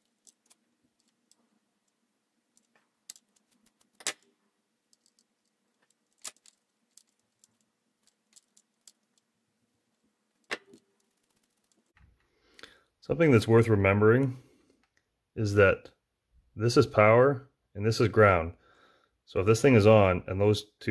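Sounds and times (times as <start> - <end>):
faint clicks and taps of wires: 0.0 - 4.3, 4.9 - 9.3, 9.9 - 12.8.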